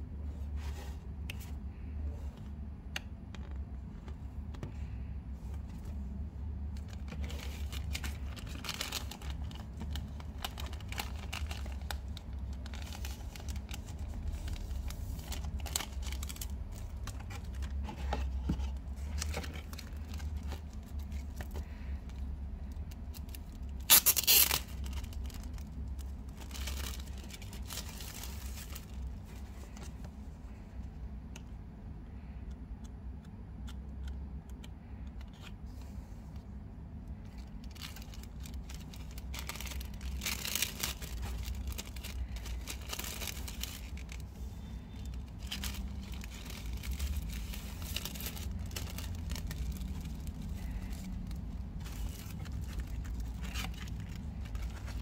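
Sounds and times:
steady low hum: 0.0 - 55.0
plastic shrink-wrap crinkling: 6.6 - 17.9, 18.7 - 29.9, 37.2 - 55.0.

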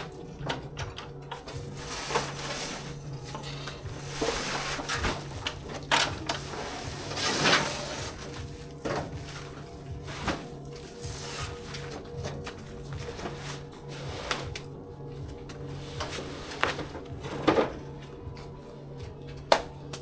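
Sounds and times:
sacks scraping on metal bed: 1.7 - 3.2, 3.9 - 12.0, 13.0 - 14.5.

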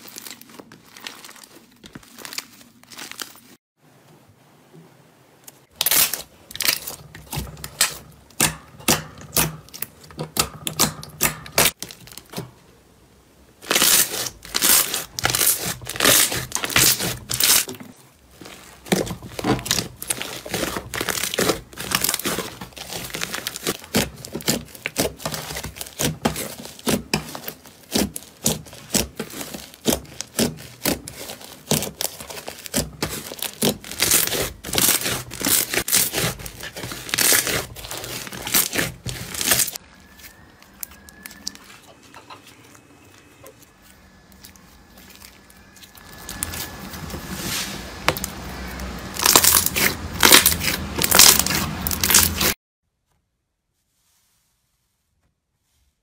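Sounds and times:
slime squishing with sticky clicks: 18.9 - 39.8.

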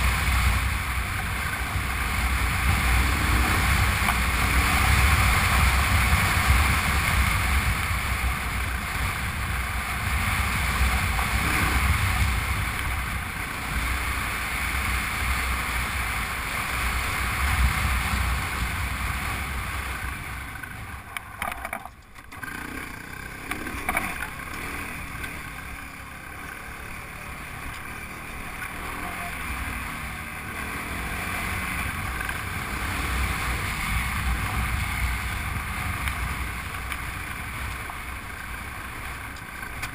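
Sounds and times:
wind rushing over microphone: 0.0 - 21.4
motorcycle engine rumble: 0.0 - 39.9.

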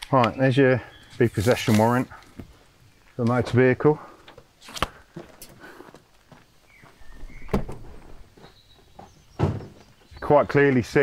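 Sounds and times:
paper rustling: 1.2 - 2.1
car door clunk: 7.3 - 7.9.

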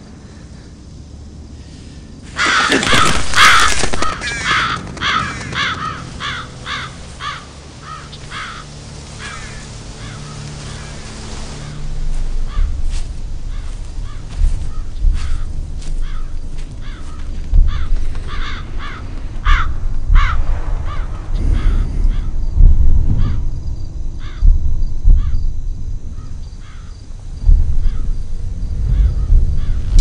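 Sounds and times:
low rumble: 0.0 - 30.0
crows cawing: 2.3 - 22.4, 24.2 - 24.5, 26.2 - 27.0, 27.8 - 28.2, 28.9 - 30.0.

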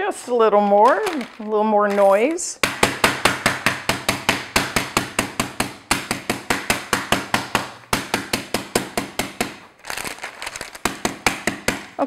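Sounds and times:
rolling pin banging on butter: 2.6 - 9.6.

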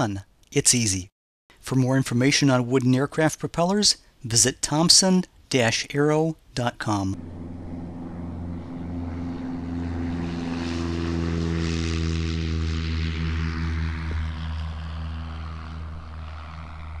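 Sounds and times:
propeller aircraft engine: 7.2 - 17.0.

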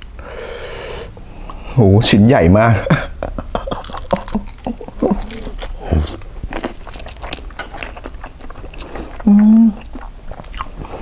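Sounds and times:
wet chewing: 3.7 - 11.0.

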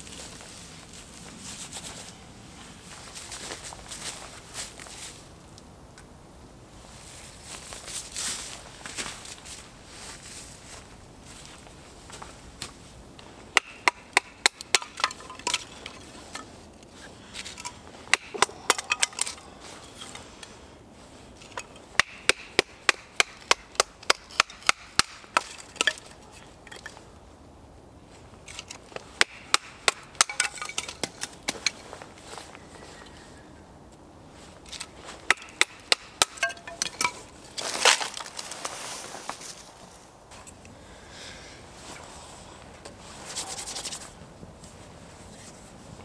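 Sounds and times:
wood splitting: 13.5 - 16.5, 17.3 - 19.4, 21.5 - 26.9, 28.5 - 31.8, 34.7 - 38.5.

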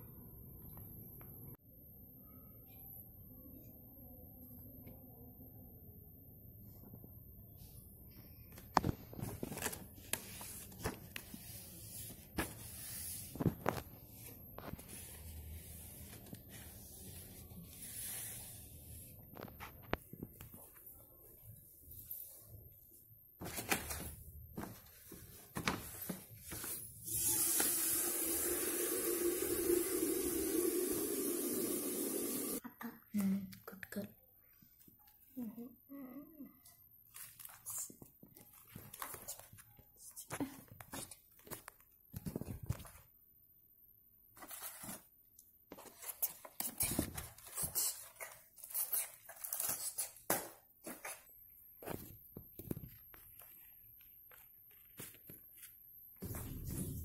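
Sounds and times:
paper rustling and crackling: 8.6 - 18.3, 23.4 - 26.9, 37.1 - 39.7
cardboard rustling and scraping: 23.4 - 27.0, 44.4 - 45.1.

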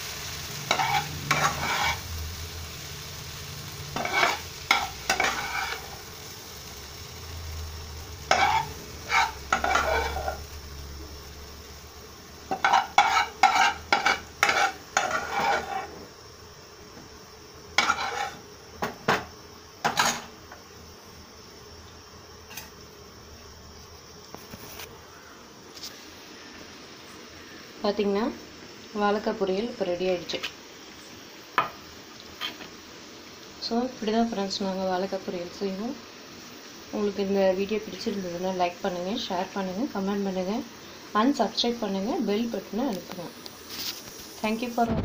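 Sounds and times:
light sizzle from hot pan: 0.0 - 45.0
spatula scraping a pan: 0.4 - 2.2, 3.9 - 6.1, 8.2 - 10.5, 12.5 - 16.1, 17.8 - 20.4, 32.4 - 32.7.

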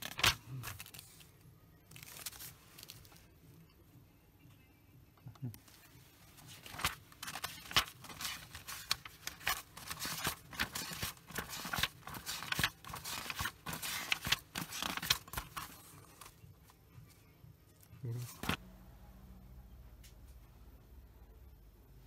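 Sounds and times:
paper rustling and crackling: 0.0 - 3.3, 5.5 - 16.4, 18.1 - 18.6.

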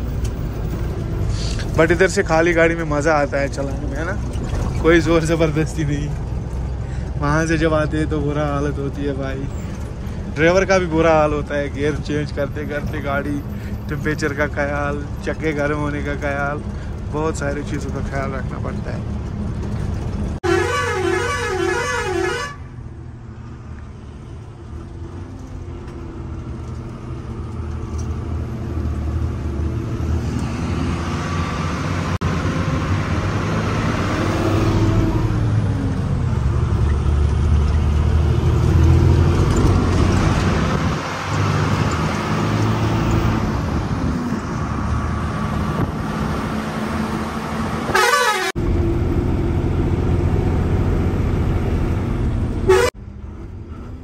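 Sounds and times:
truck engine drone: 0.0 - 54.0
wavering horn: 20.4 - 22.7, 47.9 - 48.5, 52.7 - 52.9.

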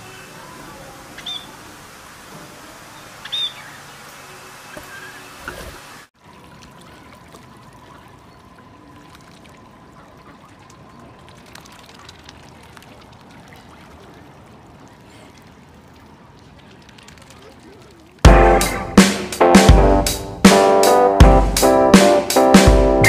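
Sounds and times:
small splashes: 0.0 - 18.3
water lapping and trickling: 0.0 - 18.3.

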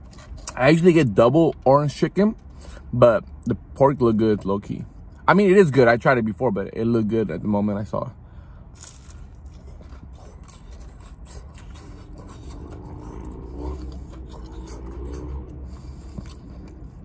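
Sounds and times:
man chewing food: 0.0 - 0.6, 8.7 - 17.0
steady low hum: 0.0 - 17.0.

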